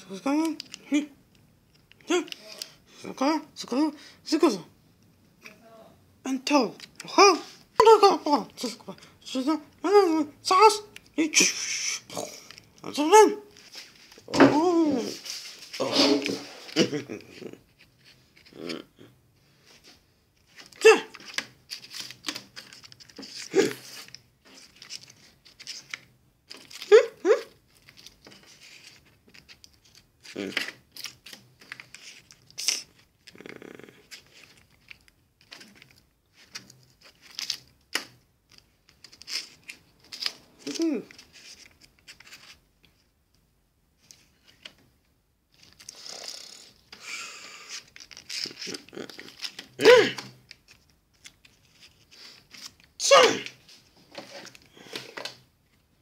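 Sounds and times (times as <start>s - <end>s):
plastic packets crinkling: 20.4s - 26.9s, 27.6s - 33.4s, 34.0s - 43.0s, 45.5s - 53.0s.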